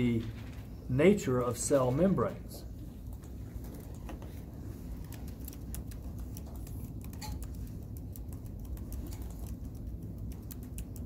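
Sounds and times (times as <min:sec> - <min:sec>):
low steady hum: 0:00.0 - 0:11.0
keyboard and mouse clicks: 0:05.1 - 0:11.0.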